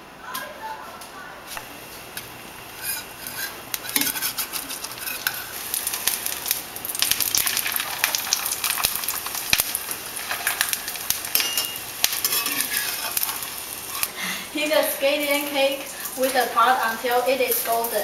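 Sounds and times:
pancake sizzling in oil: 1.7s - 18.0s
metal spatula scraping pan: 2.8s - 5.7s, 11.3s - 14.1s.

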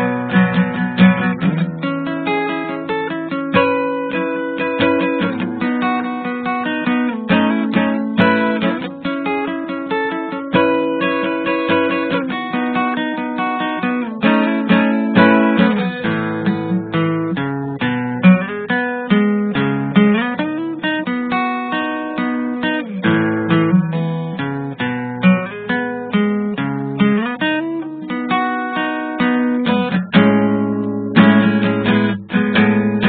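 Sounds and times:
acoustic guitar music: 0.0s - 33.0s.

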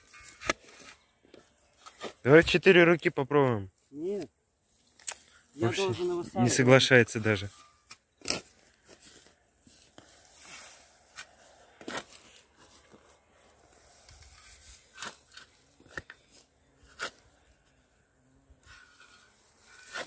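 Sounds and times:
shovel scraping: 7.4s - 9.3s, 9.9s - 13.1s, 13.8s - 17.4s, 18.6s - 20.0s
shovel crunching into soil: 7.5s - 17.4s, 18.7s - 20.0s
sod and roots tearing: 7.8s - 9.0s.

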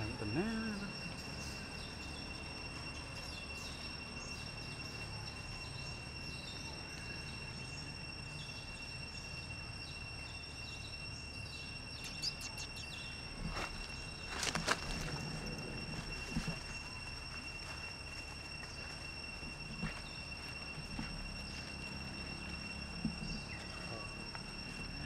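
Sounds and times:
high-pitched insect drone: 0.0s - 25.0s
low background rumble: 0.0s - 25.0s
faint short chirps: 11.9s - 13.1s.

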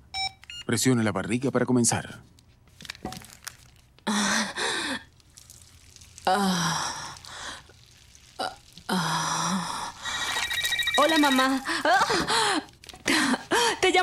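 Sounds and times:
woman sighing: 11.6s - 13.8s.

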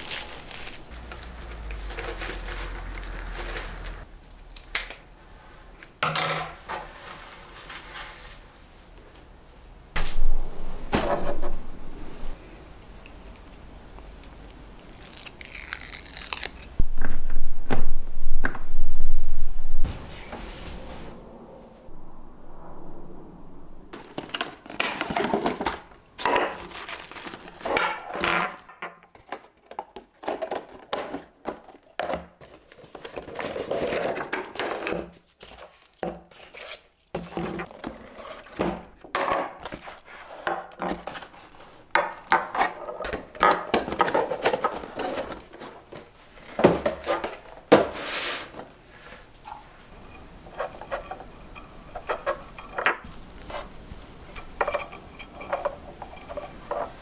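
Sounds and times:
plastic packaging crinkling: 0.0s - 4.1s, 14.3s - 16.8s, 26.5s - 27.8s
loud low rumble: 10.0s - 12.4s, 16.8s - 24.4s.

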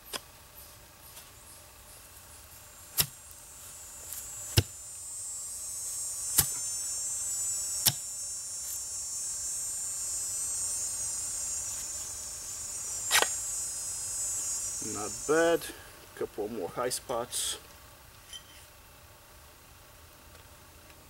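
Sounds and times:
steady high buzz: 0.0s - 21.0s.

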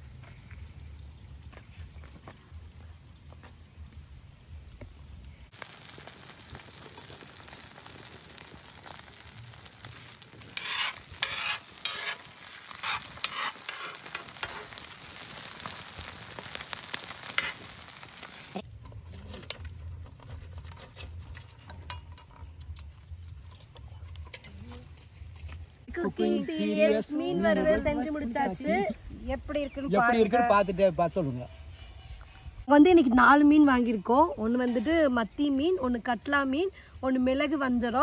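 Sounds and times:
fish sizzling in oil: 5.3s - 18.8s
metal spatula scraping a pan: 10.1s - 14.8s.

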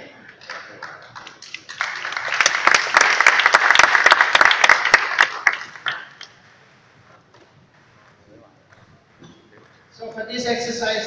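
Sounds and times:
audience applauding: 0.3s - 6.4s.

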